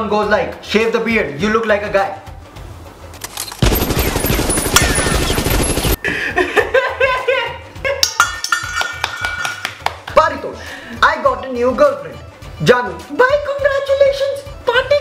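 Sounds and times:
machine-gun fire sound effect: 3.6 - 6.0
laughter: 6.0 - 8.1.

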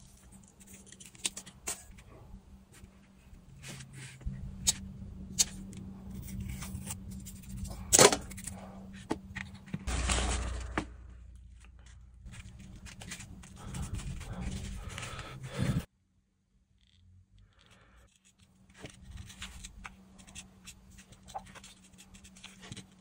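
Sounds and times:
steady low hum: 0.0 - 15.9.

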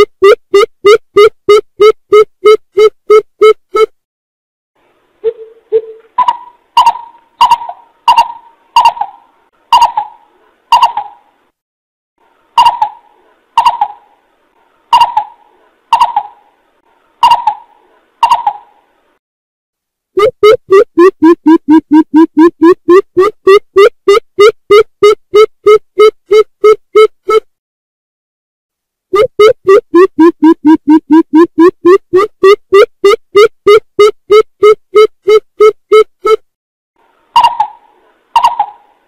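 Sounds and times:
bird calls: 5.2 - 11.2, 14.9 - 16.4, 17.2 - 18.7, 37.4 - 38.9
fast series of deeper calls: 5.2 - 11.2, 14.9 - 16.5, 37.4 - 39.0.

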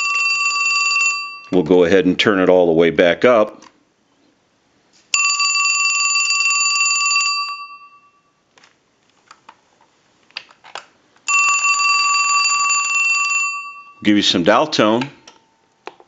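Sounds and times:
telephone bell ringing: 0.0 - 1.6, 5.1 - 8.4, 11.3 - 14.1.

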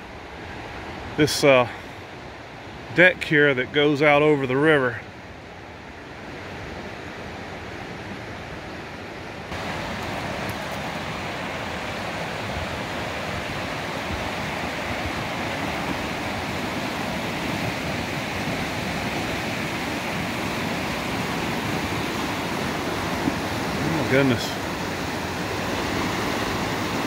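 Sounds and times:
river rushing over rapids: 0.0 - 27.0.

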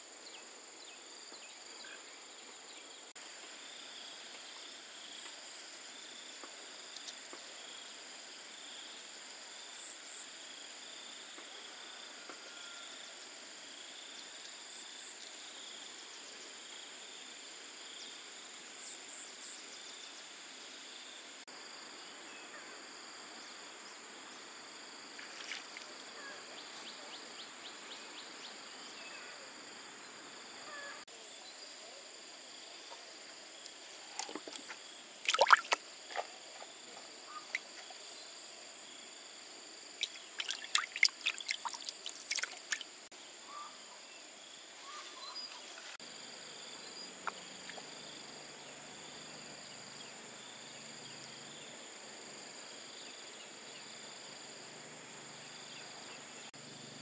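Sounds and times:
insects droning: 0.0 - 57.0
water sloshing and splashing: 34.1 - 36.4, 40.0 - 43.0
sharp splashes: 35.2 - 36.3, 40.0 - 43.0.

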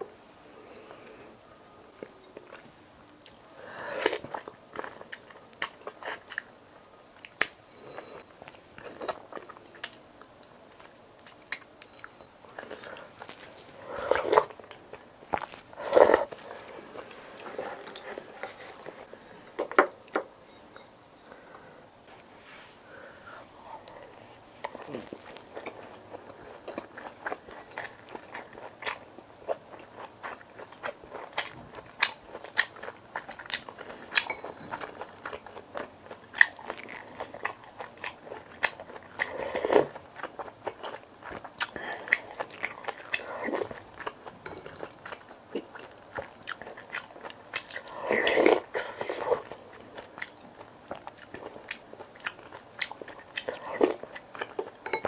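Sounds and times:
crunchy chewing and biting: 11.2 - 19.1, 24.6 - 54.8.

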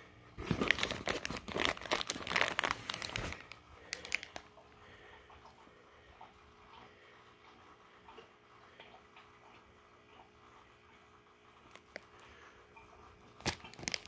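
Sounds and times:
plastic bags crinkling: 0.4 - 4.5, 13.3 - 14.0.

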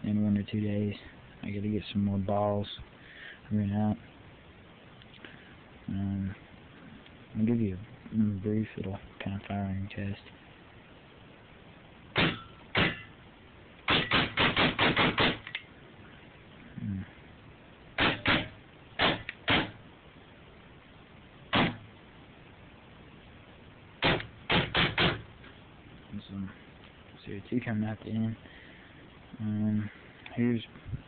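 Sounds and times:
paintball marker shots: 12.2 - 13.1, 13.9 - 15.6, 18.0 - 19.8, 21.5 - 21.8, 24.0 - 25.2.

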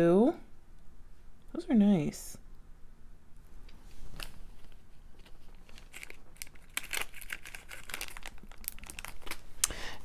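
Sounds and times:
plastic bags crinkling: 4.1 - 10.0.

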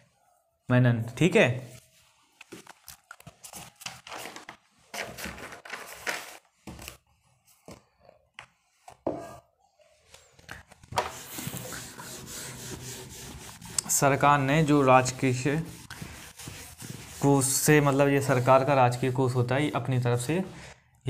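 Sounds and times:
pen scraping: 10.9 - 17.4
pen scratching strokes: 11.0 - 19.3.

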